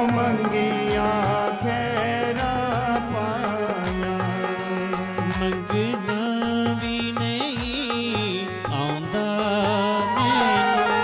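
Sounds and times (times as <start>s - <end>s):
steady drone: 0.0s - 3.7s.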